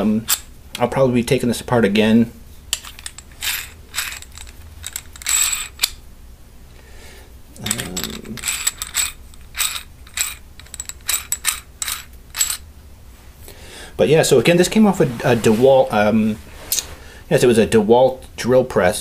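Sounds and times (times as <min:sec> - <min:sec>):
metallic chuck clicks: 0:02.7 - 0:06.0, 0:07.6 - 0:12.6
chuck rasping: 0:07.6 - 0:10.4.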